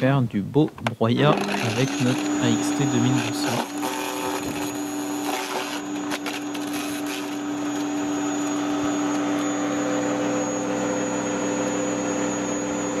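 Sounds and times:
garden shredder motor hum: 1.2s - 13.0s
branch cracking in shredder: 3.1s - 8.0s.

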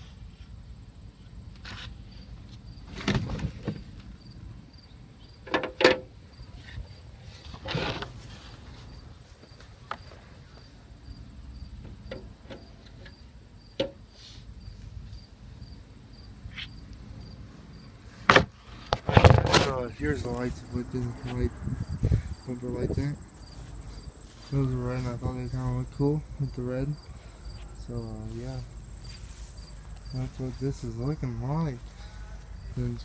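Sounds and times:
steady low rumble: 19.8s - 33.0s.

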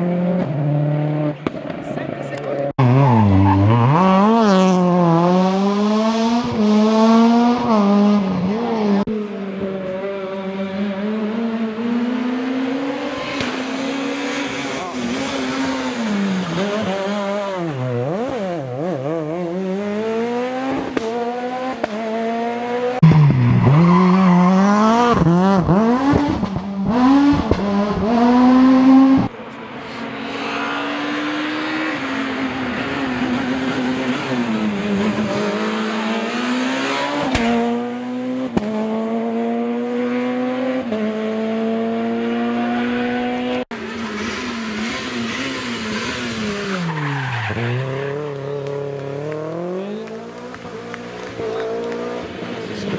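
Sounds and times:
rally car engines at full throttle: 0.0s - 52.9s.

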